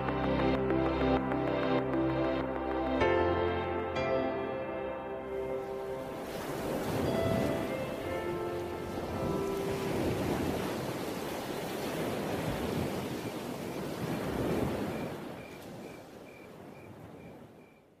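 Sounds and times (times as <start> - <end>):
rushing noise like surf: 5.4 - 16.0
faint high chirp: 14.9 - 18.0.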